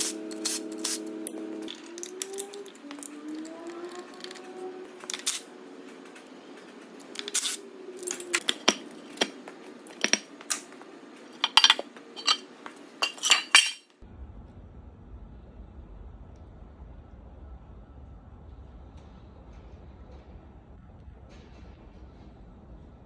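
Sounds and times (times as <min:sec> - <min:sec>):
metal parts clinking: 0:09.9 - 0:10.7, 0:11.4 - 0:13.9.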